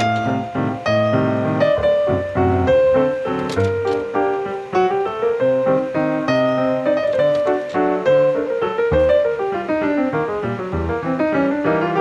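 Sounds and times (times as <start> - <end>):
instrumental background music: 0.0 - 12.0.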